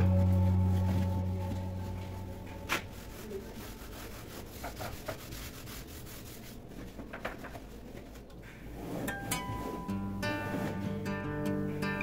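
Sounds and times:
rubbing on plastic: 0:00.8 - 0:09.6.

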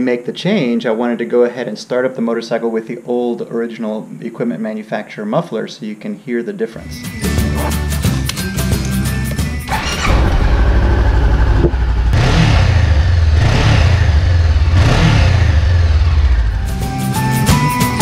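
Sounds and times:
motorcycle engine revving: 0:09.6 - 0:16.8.

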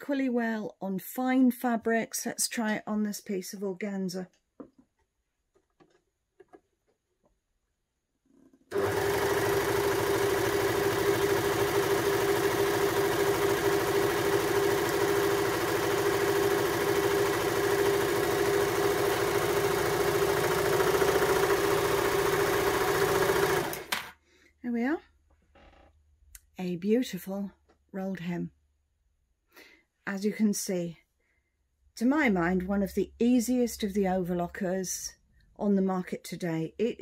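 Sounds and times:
overlocker sewing with hum: 0:08.2 - 0:24.2.

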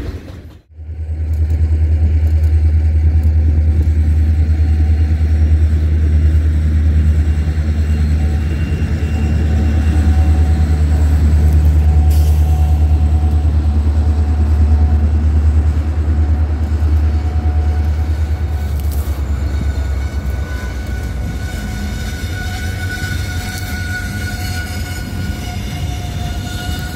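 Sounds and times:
diesel locomotive engines throbbing: 0:00.0 - 0:26.9
high wheel squeal: 0:06.2 - 0:15.9, 0:17.0 - 0:26.9.

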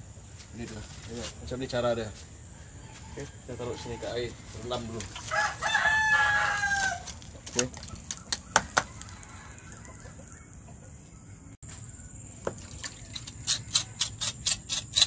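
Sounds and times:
chickens clucking: 0:07.2 - 0:11.2
knife scraping skin: 0:13.2 - 0:15.0.

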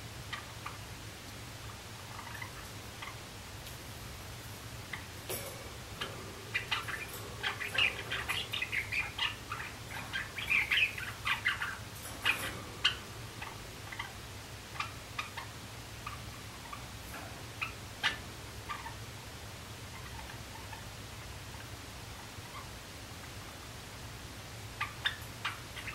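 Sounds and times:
sparrow clicking and chirping: 0:04.8 - 0:16.9.

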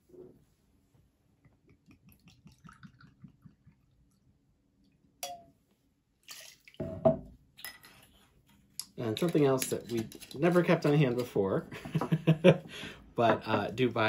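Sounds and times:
glass clink: 0:05.2 - 0:05.6
liquid splashing into metal shaker: 0:06.2 - 0:06.8.

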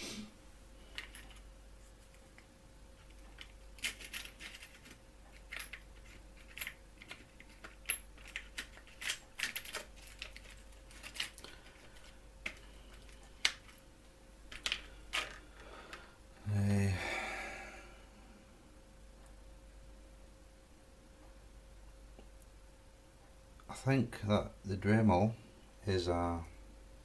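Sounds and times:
faint steady hum: 0:00.0 - 0:27.0
small bits rattling in plastic box: 0:03.1 - 0:13.8.

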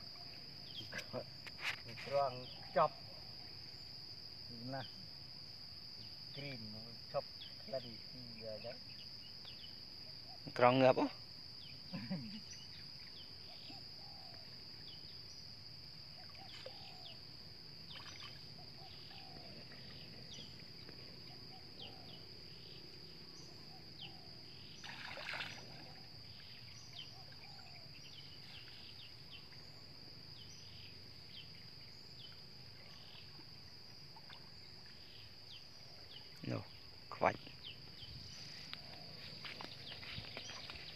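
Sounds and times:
insects droning: 0:00.0 - 0:40.9
net hauled through water: 0:24.8 - 0:26.1.

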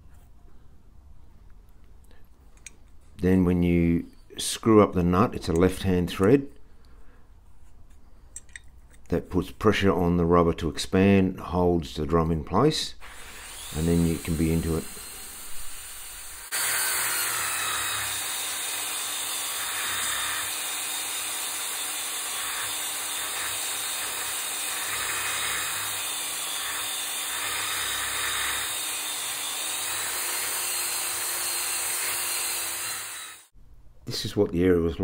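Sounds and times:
power tool motor whine: 0:13.0 - 0:33.5.

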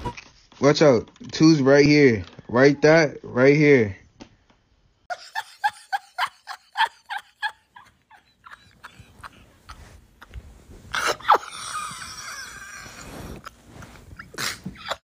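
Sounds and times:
person laughing: 0:05.1 - 0:13.4.

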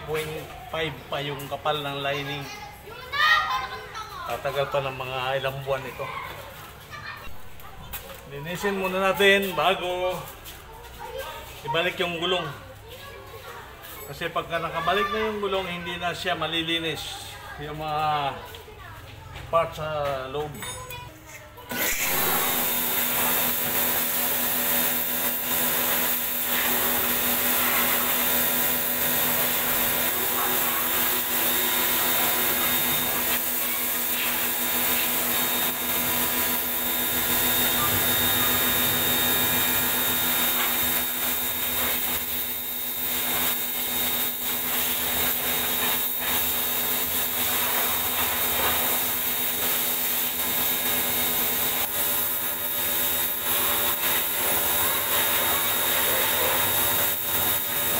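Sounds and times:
pressure washer motor whine: 0:21.7 - 0:57.9
water jet hissing: 0:21.7 - 0:57.9.

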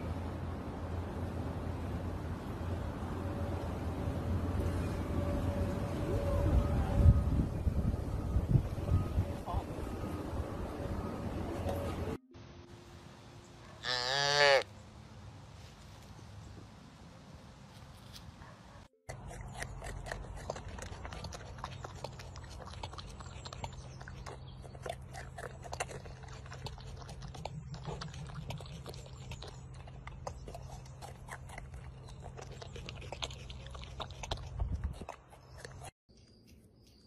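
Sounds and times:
low steady hum: 0:00.0 - 0:13.8
porcupine crunching a tomato: 0:19.1 - 0:37.0.

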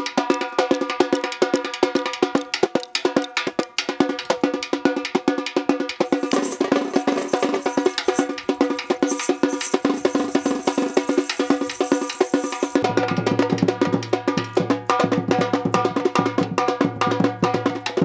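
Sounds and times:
shaker jingling: 0:00.0 - 0:13.1
metal drum struck fast: 0:00.0 - 0:18.0.

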